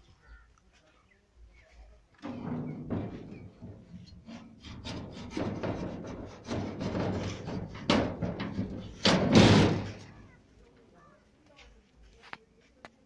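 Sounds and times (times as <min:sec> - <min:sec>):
rusty metal door scraping: 0:02.2 - 0:10.3.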